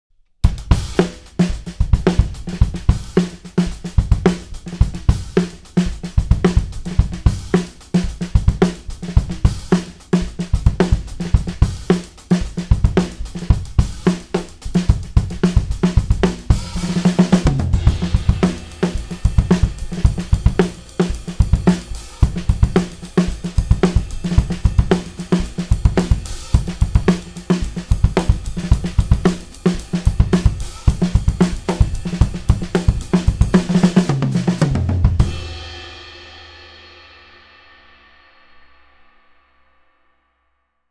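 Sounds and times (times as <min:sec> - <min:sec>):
acoustic drum kit beat: 0:00.4 - 0:37.4
cymbal and tom ringing: 0:16.5 - 0:33.6.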